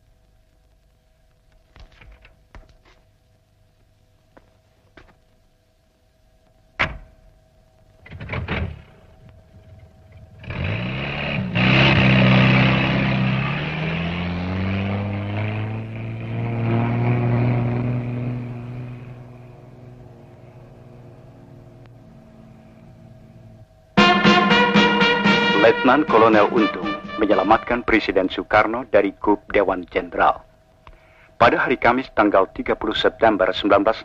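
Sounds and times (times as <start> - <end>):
vehicle engine starting and revving: 10.3 - 22.6.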